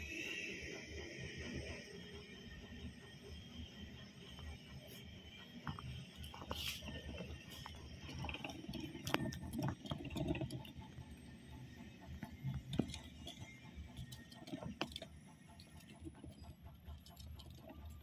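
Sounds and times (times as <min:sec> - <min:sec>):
hamster running in plastic wheel: 0:06.4 - 0:18.0.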